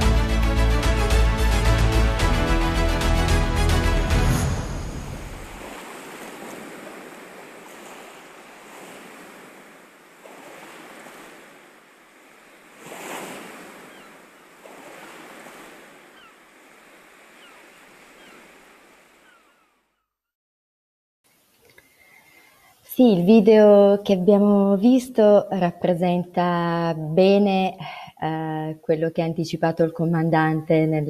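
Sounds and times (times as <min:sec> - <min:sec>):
sea surf rushing: 0:00.0 - 0:19.6.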